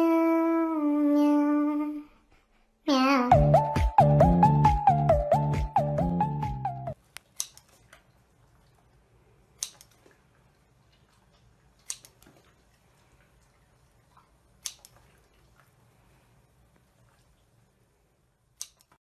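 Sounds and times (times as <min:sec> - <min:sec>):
children's pop song: 0:02.9 - 0:07.0
scissors snipping food: 0:18.6 - 0:19.0.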